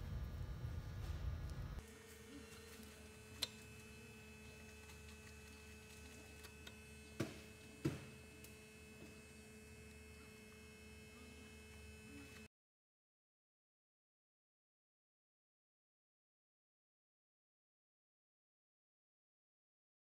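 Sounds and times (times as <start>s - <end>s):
faint electrical hum: 0.0s - 12.5s.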